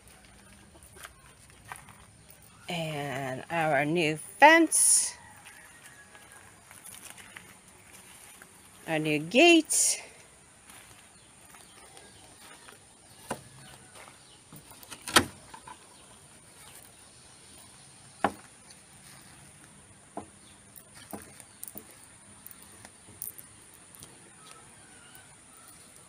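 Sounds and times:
footsteps in flip-flops: 0:00.0 - 0:02.5, 0:05.4 - 0:08.8, 0:10.6 - 0:14.8.

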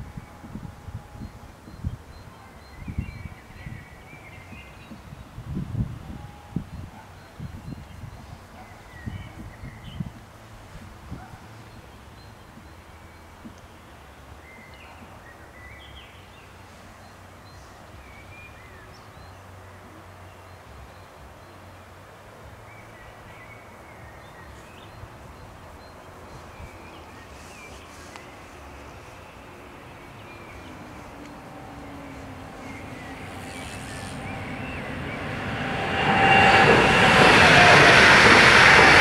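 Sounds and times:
low outdoor rumble: 0:00.0 - 0:39.0
small birds chirping: 0:22.4 - 0:35.7.

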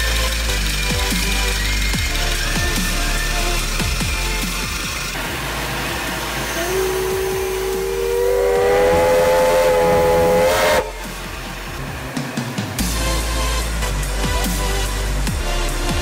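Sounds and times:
steam hissing: 0:00.0 - 0:16.0
steam whistle chord: 0:05.2 - 0:12.2.

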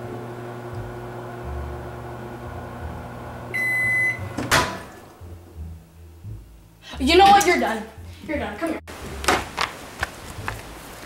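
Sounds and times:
microwave oven humming: 0:00.0 - 0:05.5
long microwave beep: 0:03.5 - 0:04.4
microwave door popping open: 0:04.4 - 0:04.9.

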